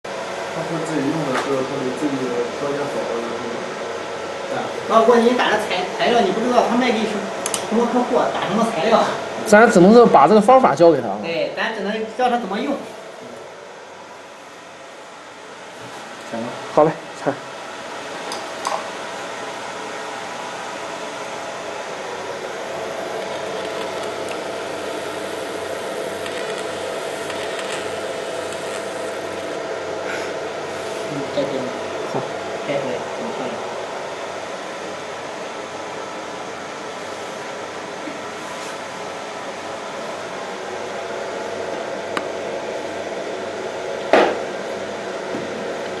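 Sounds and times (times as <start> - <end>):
cooling fans whirring: 0.0 - 46.0
laser marking machine whirring: 22.0 - 29.9
mid-pitched buzz: 22.7 - 30.2.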